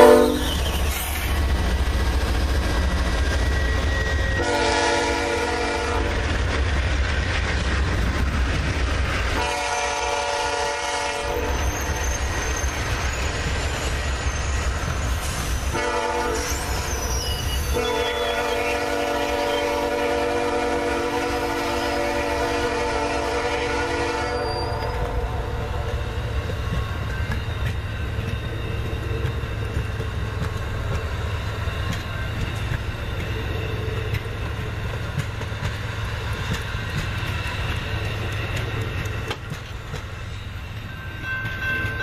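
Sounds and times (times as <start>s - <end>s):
locomotive horn blasts: 0.0s - 0.6s, 4.4s - 6.2s, 9.4s - 11.6s, 15.7s - 16.5s, 17.7s - 25.8s
train cars rumbling past: 0.0s - 42.0s.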